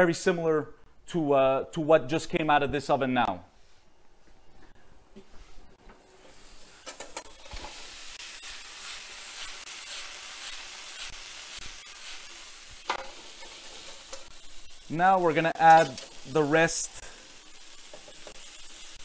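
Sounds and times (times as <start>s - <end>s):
vegetables sizzling in a pan: 6.0s - 19.0s.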